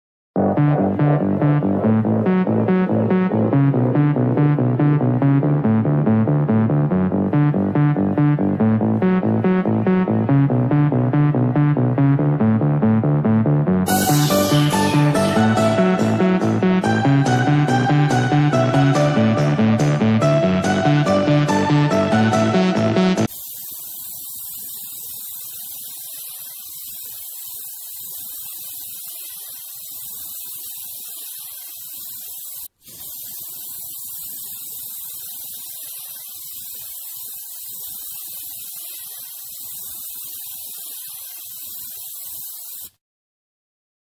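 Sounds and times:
aerosol spray hissing: 0:13.9 - 0:19.3, 0:23.2 - 0:43.0.

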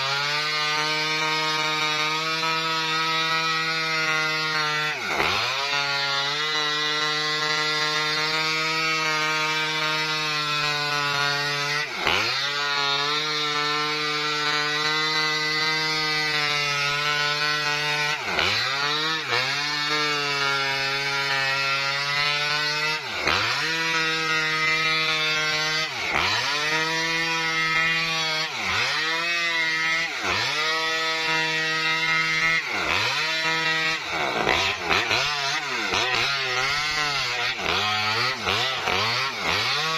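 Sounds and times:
chainsaw cutting through wood: 0:00.0 - 0:39.9.

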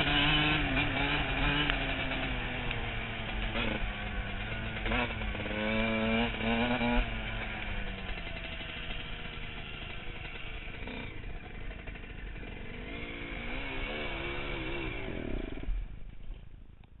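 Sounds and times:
dirt bike engine revving: 0:00.0 - 0:16.4.

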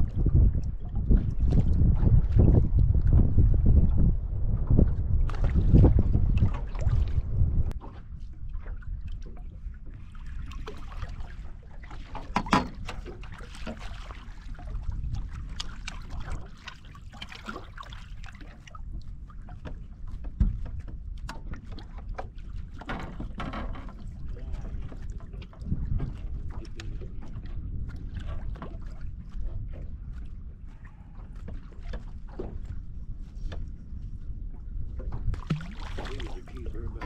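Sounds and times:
low steady rumble: 0:00.0 - 0:10.4
wind buffeting microphone: 0:00.0 - 0:21.8, 0:22.5 - 0:37.0
waves lapping against boat hull: 0:00.0 - 0:37.0.

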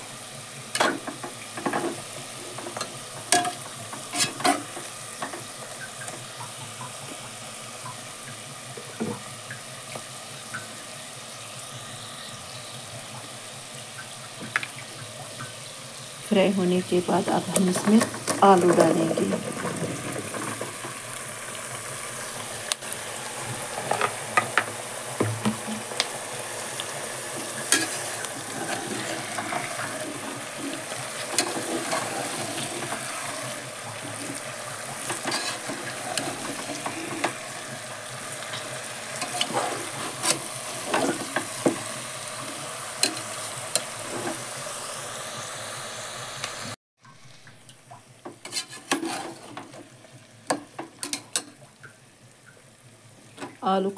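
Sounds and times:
potatoes frying in hot oil: 0:00.0 - 0:53.9
metal spoon scraping pot: 0:02.8 - 0:04.8, 0:35.1 - 0:37.4, 0:48.4 - 0:49.6.

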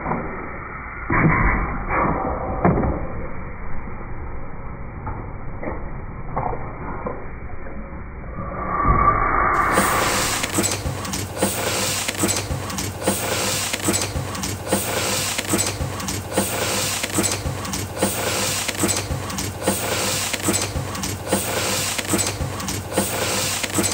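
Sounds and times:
printing press hum: 0:09.6 - 0:23.9
printing press mechanical clatter: 0:10.1 - 0:23.9.

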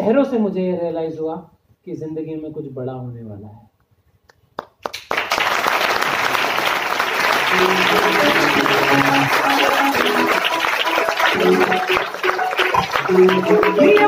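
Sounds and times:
audience applauding: 0:04.6 - 0:14.0
music: 0:07.4 - 0:14.0.

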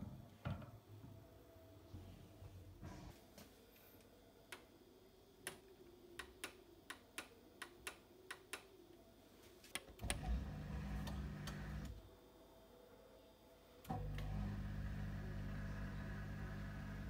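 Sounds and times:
dishwasher humming: 0:10.0 - 0:12.0, 0:13.9 - 0:17.0.

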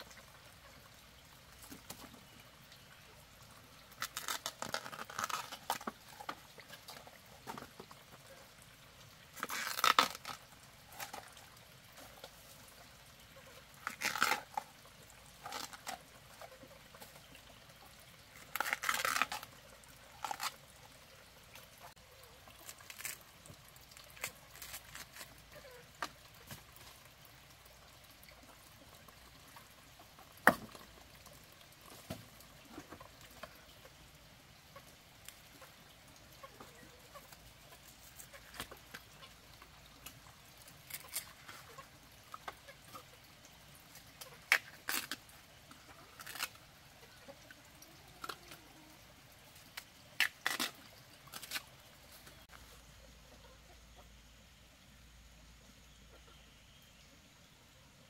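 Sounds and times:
bamboo shoots clicking and tapping: 0:03.8 - 0:08.0, 0:30.4 - 0:31.0, 0:44.0 - 0:45.3, 0:49.6 - 0:52.6.

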